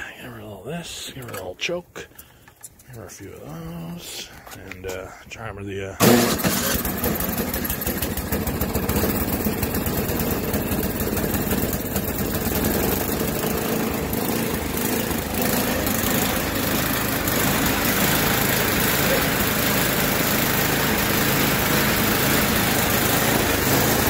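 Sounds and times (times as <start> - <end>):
snowblower engine surging idle: 6.0 - 24.0.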